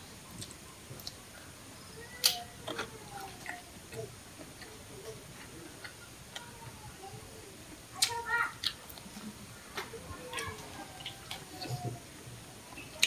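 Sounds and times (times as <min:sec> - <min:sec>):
mouth clicks and smacks chewing: 0:08.0 - 0:09.2.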